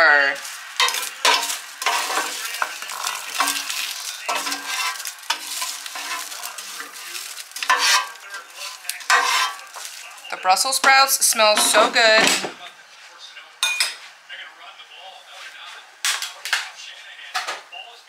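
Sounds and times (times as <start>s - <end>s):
spoon scraping basket: 0.4s - 10.7s.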